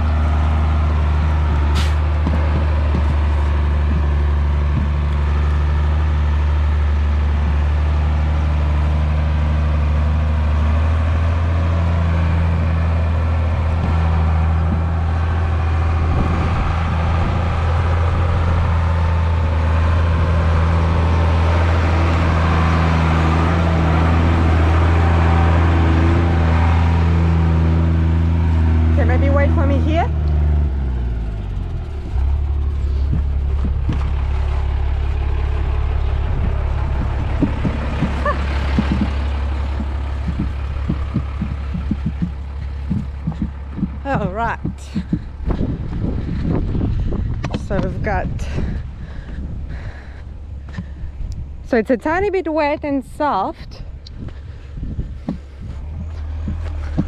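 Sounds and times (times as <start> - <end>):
truck diesel engine at low revs: 0.0 - 57.0.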